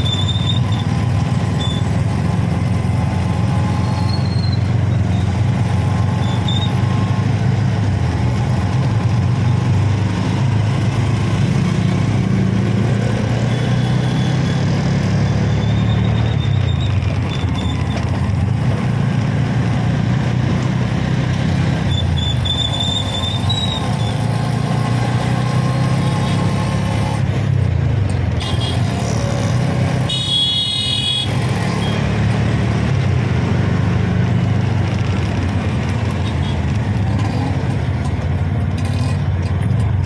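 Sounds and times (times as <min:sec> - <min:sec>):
auto rickshaw engine droning: 0:00.0 - 0:40.0
road traffic: 0:00.0 - 0:40.0
vehicle horn: 0:28.4 - 0:28.9, 0:30.0 - 0:32.0.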